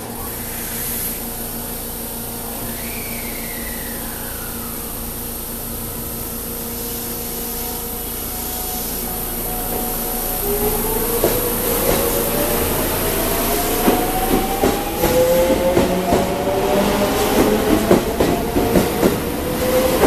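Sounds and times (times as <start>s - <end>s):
electric train humming and whining: 0.0s - 20.0s
train pulling away: 0.0s - 20.0s.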